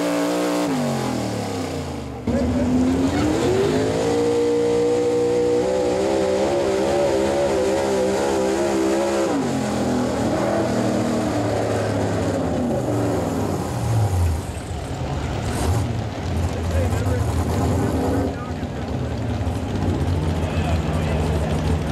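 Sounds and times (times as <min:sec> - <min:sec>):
pickup engine at full throttle: 0:00.0 - 0:21.9.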